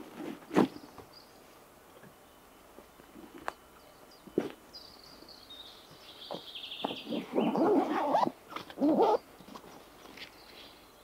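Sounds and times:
songbird singing with trill: 0:00.8 - 0:02.7, 0:03.5 - 0:11.0
rough close-by noises: 0:06.2 - 0:10.9.

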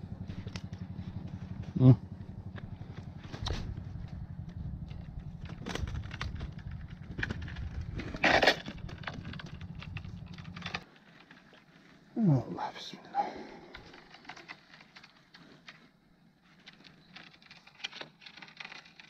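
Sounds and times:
steady low rumble: 0:00.0 - 0:10.8
camera handling clicks and rustles: 0:04.9 - 0:11.8.

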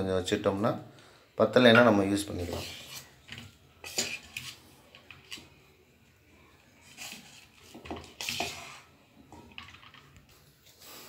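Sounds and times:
metal spoon scraping steel bowl: 0:01.8 - 0:05.6, 0:06.8 - 0:09.0.

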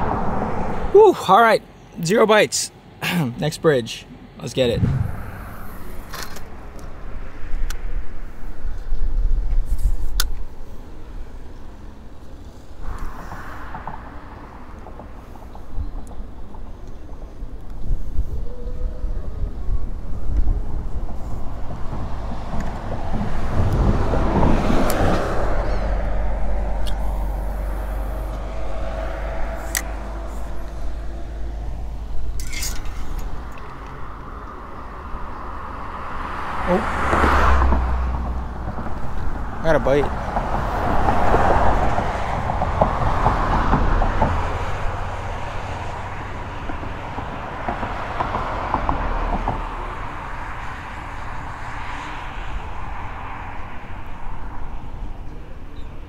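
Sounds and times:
vehicle passing: 0:00.0 - 0:00.9, 0:04.5 - 0:08.6, 0:11.2 - 0:15.7, 0:20.1 - 0:55.2
road traffic rumble: 0:00.0 - 0:56.0.

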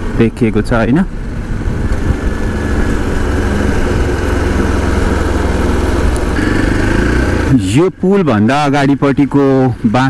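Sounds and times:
vehicle engine running on road: 0:00.0 - 0:10.0.

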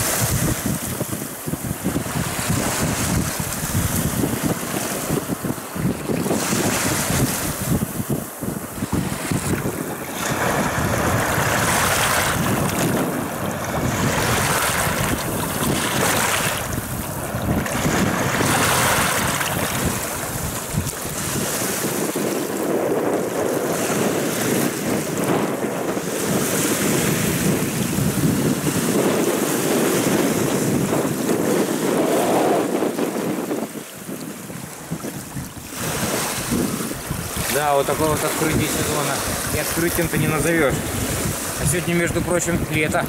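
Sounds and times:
waves breaking on pebble shore: 0:00.0 - 0:43.0
wind buffeting microphone: 0:00.0 - 0:43.0.

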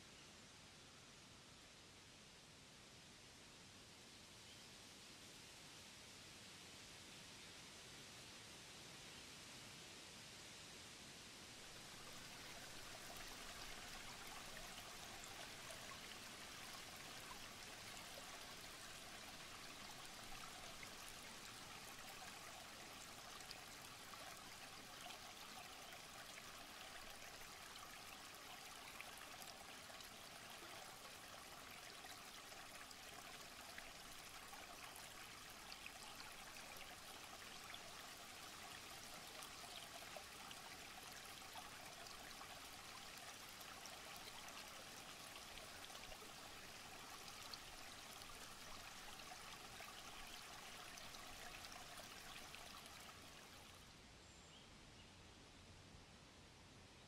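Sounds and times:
stream trickling over stones: 0:11.6 - 0:54.0.

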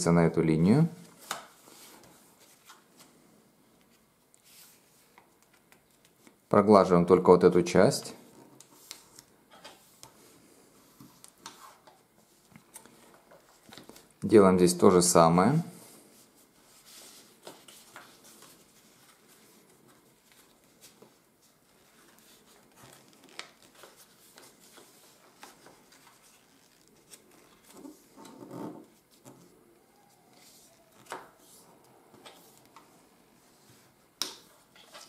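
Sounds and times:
paper rustling and crackling: 0:16.6 - 0:29.4.

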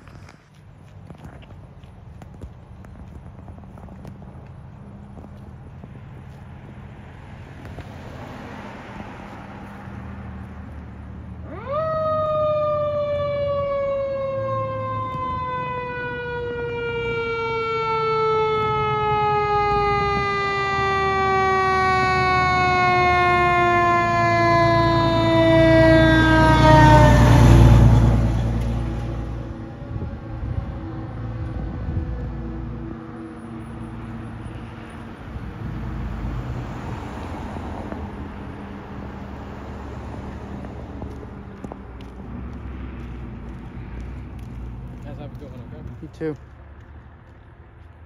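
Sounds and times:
truck engine rumble: 0:00.0 - 0:48.0
fire engine siren: 0:10.6 - 0:45.9.

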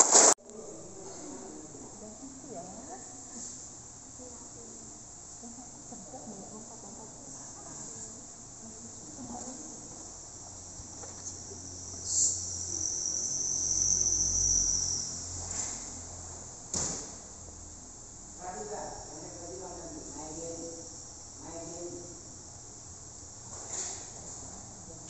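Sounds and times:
brief sharp hiss: 0:00.0 - 0:00.4, 0:12.0 - 0:12.5
insects chirring: 0:09.6 - 0:16.1.

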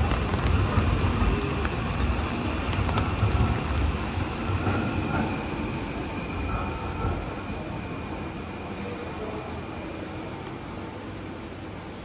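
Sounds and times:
heavy rain on street: 0:00.0 - 0:06.4.

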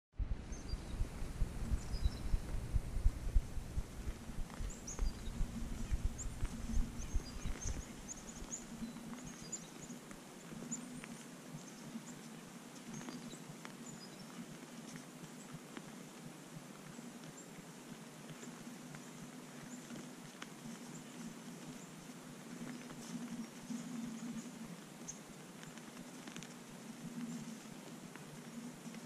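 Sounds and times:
wind buffeting microphone: 0:00.2 - 0:09.0
small birds chirping: 0:00.4 - 0:15.7.

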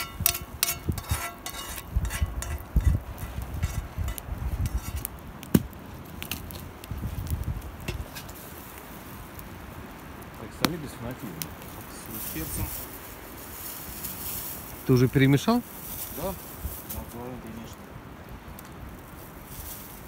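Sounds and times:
metal spoon knocking frying pan: 0:00.0 - 0:02.6.

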